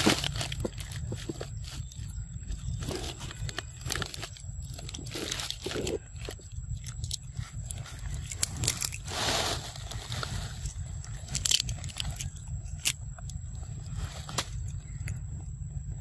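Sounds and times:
monkeys chewing: 0.0s - 9.1s, 9.9s - 15.5s
rustling: 0.0s - 15.2s.

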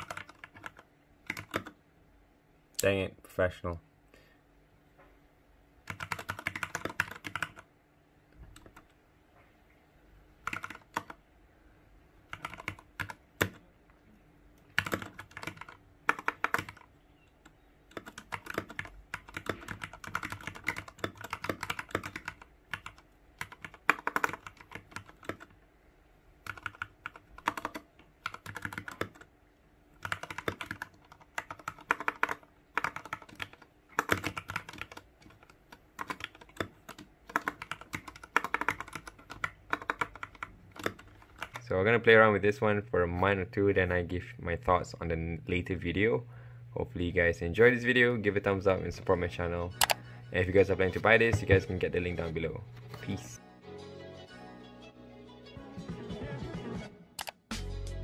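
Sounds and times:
mechanical keyboard typing: 0.0s - 1.8s, 5.8s - 7.7s, 10.4s - 11.2s, 12.3s - 13.6s, 14.7s - 16.9s, 17.9s - 25.5s, 26.4s - 29.3s, 30.0s - 41.6s.

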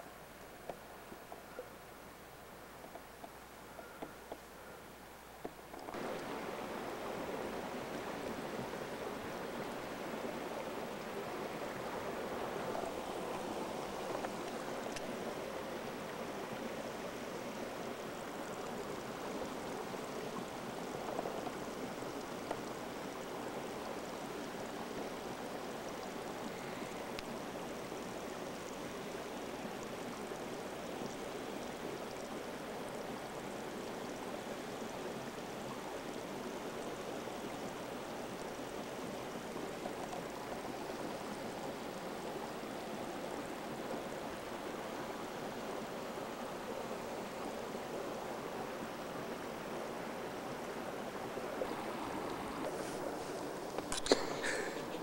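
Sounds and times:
running stream water: 0.0s - 55.0s.

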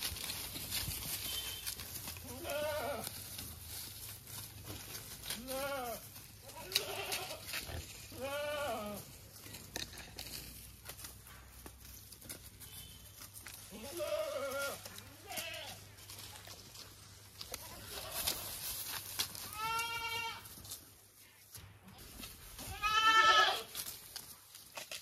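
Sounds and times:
goats bleating: 2.2s - 3.2s, 5.2s - 9.1s, 13.7s - 15.8s, 19.5s - 20.5s, 22.6s - 23.8s.

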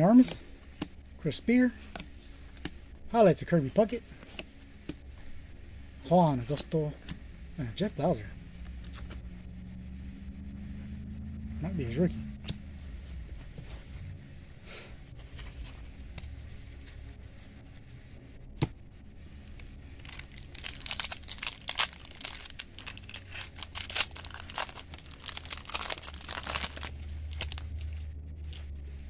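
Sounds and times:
foil wrapper tearing and crinkling: 19.4s - 28.1s.

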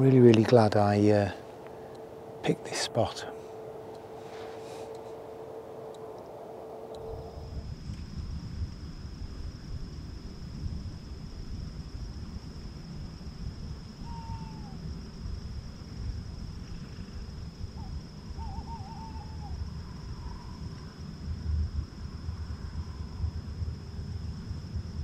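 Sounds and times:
low rumble: 2.0s - 13.8s
owl hooting: 14.0s - 14.9s, 17.8s - 20.8s.

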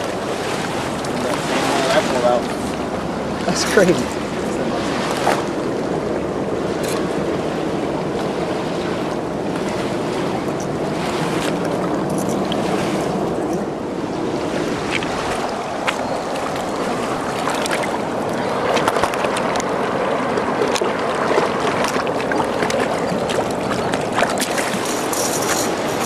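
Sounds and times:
rushing river water: 0.0s - 26.0s
small splashes and knocks: 20.6s - 26.0s.

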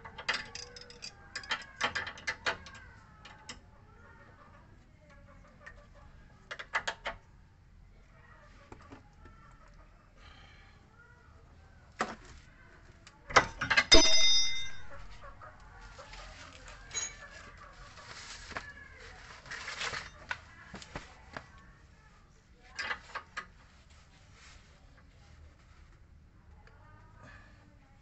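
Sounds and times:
wrench clinking on metal parts: 0.0s - 3.6s, 13.3s - 15.2s, 16.9s - 17.4s
loud ringing metallic clank: 13.9s - 15.1s.

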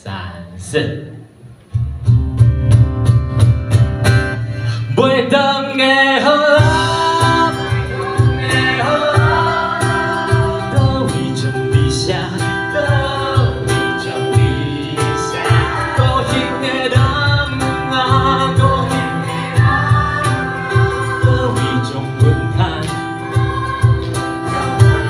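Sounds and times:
cajon beat: 1.3s - 25.0s
strummed acoustic guitars: 1.7s - 25.0s
person singing: 5.0s - 25.0s.

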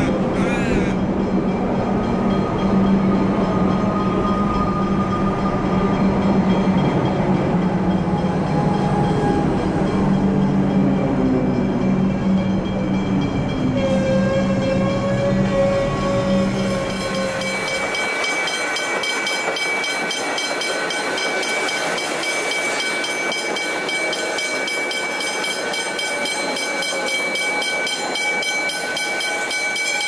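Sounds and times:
electric train running: 0.0s - 30.0s
level crossing bells ringing: 16.6s - 30.0s.

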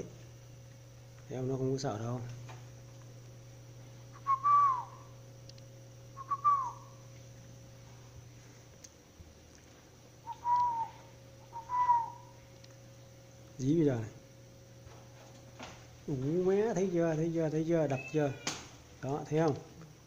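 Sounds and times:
low steady hum: 0.0s - 20.0s
person whistling short notes: 4.2s - 5.0s, 6.2s - 6.9s, 10.2s - 12.3s.

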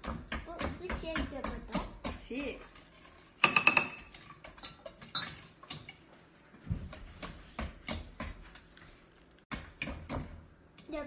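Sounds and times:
whisk clinking against bowl: 2.6s - 6.0s.

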